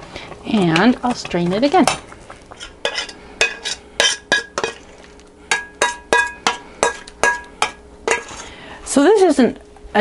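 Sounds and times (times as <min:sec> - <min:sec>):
spoon scraping saucepan: 0:02.5 - 0:08.5
spoon clinking on metal pan: 0:05.5 - 0:08.4.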